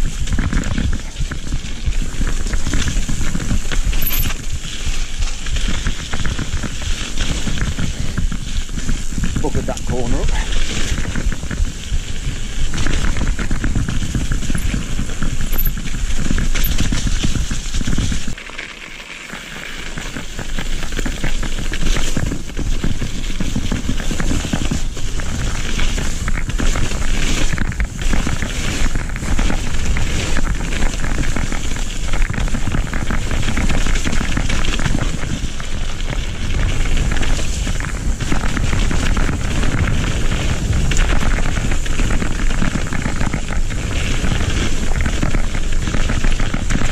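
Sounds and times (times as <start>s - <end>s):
tyres crackling over dirt: 0.0s - 46.9s
bike chattering over bumps: 0.1s - 46.9s
wind buffeting microphone: 20.3s - 46.9s.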